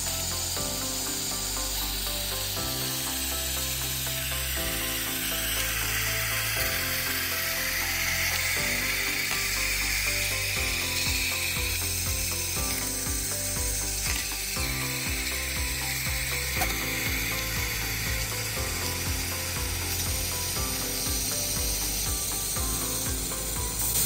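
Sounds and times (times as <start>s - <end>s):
air compressor humming: 0.0s - 24.0s
air hissing: 0.0s - 24.0s
ratcheting clicks and knocks: 7.7s - 24.0s.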